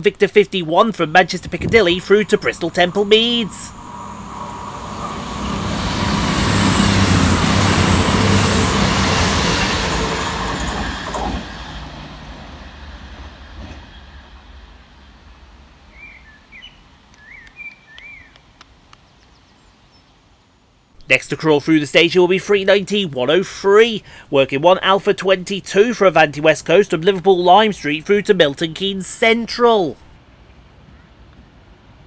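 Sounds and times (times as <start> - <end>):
train passing at speed: 1.5 - 18.9
birds chirping: 15.9 - 20.2.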